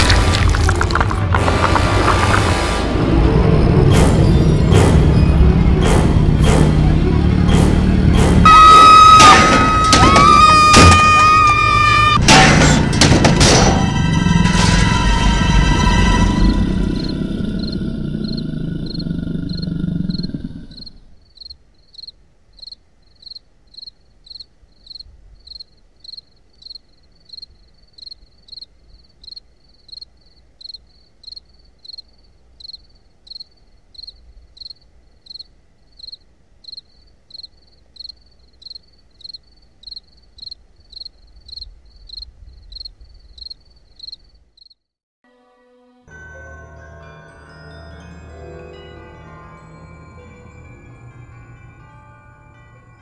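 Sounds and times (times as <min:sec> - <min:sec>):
cricket chirping: 0:15.6 - 0:44.9.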